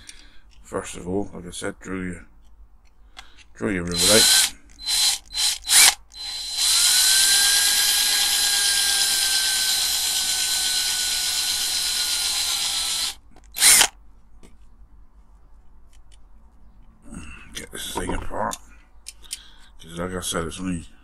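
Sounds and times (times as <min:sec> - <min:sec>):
power drill whining: 0:03.9 - 0:13.9.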